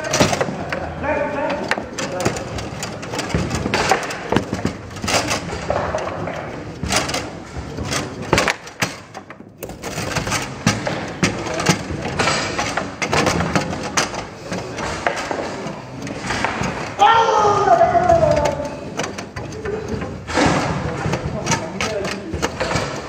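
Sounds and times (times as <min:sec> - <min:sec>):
table football ball clacking: 0:00.0 - 0:23.0
table football rods knocking: 0:00.0 - 0:23.0.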